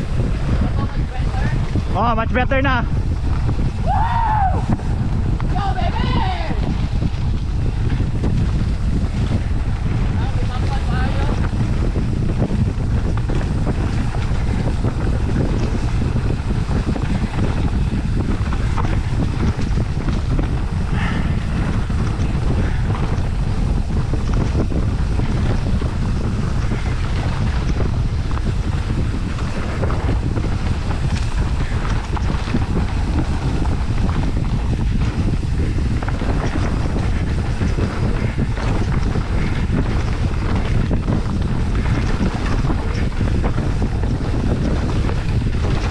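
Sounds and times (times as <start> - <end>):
wind buffeting microphone: 0.0 - 45.9
bike knocks and rattles: 4.7 - 45.9.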